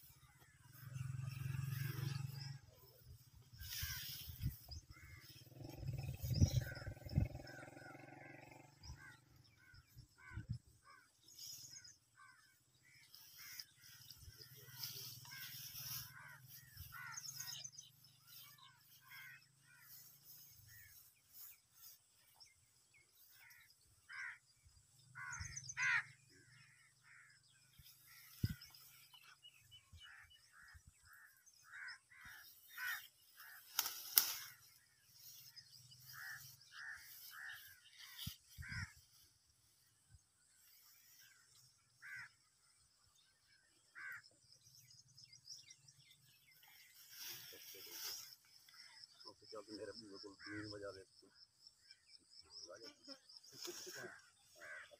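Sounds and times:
leaves and grass rustling: 0.0s - 6.8s, 10.9s - 24.4s, 31.5s - 42.5s, 46.2s - 49.2s, 53.4s - 54.9s
birds calling: 0.0s - 54.9s.

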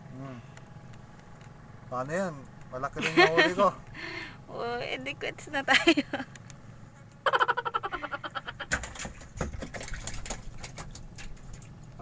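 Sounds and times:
dull knocks in wooden boat: 8.7s - 11.2s.

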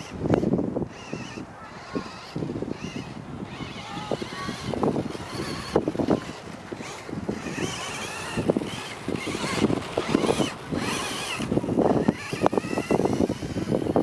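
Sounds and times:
rc car motor whining: 0.0s - 14.0s
wind on microphone: 0.0s - 14.0s.

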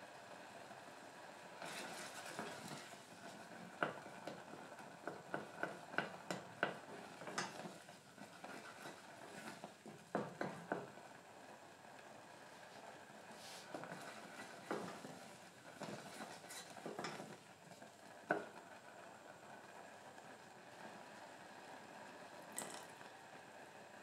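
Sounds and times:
spatula scraping a saucepan: 1.6s - 11.0s, 13.4s - 17.5s
spatula knocking against pan: 3.7s - 11.0s, 15.8s - 17.4s.

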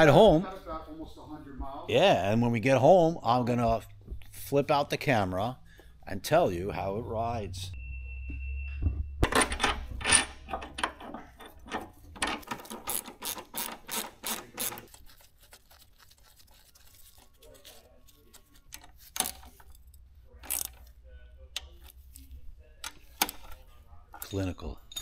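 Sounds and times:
hand ratchet clicking: 9.5s - 15.0s.

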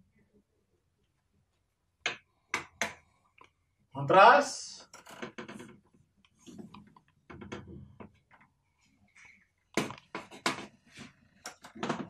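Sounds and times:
clicks and taps: 2.0s - 3.6s.

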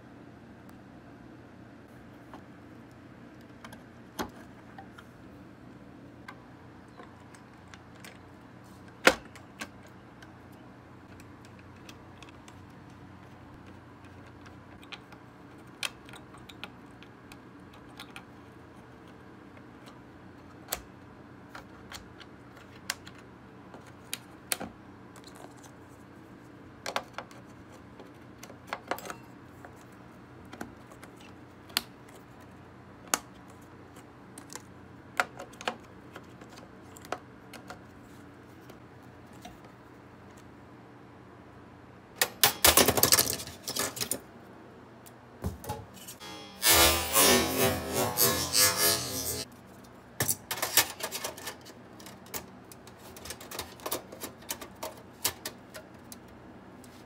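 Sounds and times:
faint steady hum: 0.0s - 57.0s
clicks of handling computer parts: 50.2s - 56.4s.

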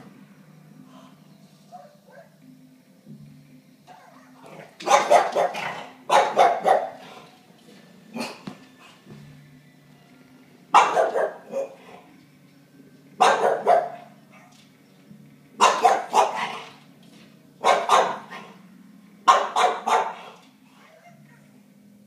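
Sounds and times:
small dog barking: 3.9s - 7.1s, 10.7s - 11.8s, 13.2s - 14.6s, 15.6s - 16.7s, 17.6s - 18.5s, 19.3s - 20.4s.

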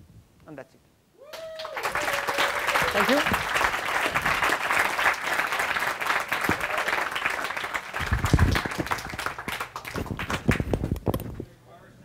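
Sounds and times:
audience applauding: 1.3s - 10.9s.

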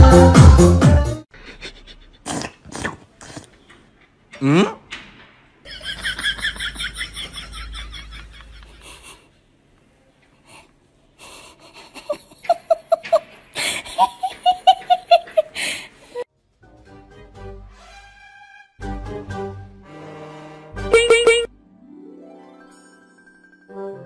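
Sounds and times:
person laughing: 1.4s - 2.3s, 5.7s - 9.3s, 11.3s - 16.2s, 20.9s - 21.5s.

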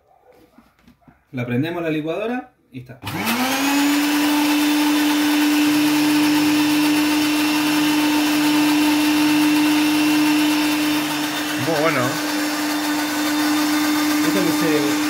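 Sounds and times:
electric blender running: 3.0s - 15.0s.

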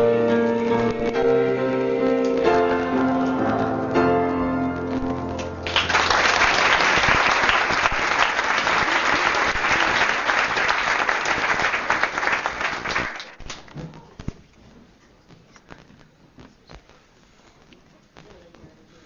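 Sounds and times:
audience applauding: 5.4s - 13.7s.

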